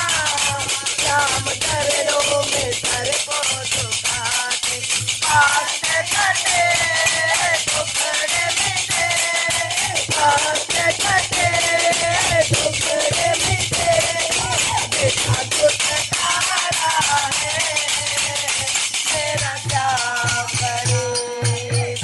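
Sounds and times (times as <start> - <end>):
rattling hand percussion: 0.0 - 22.0
woman singing: 0.0 - 22.0.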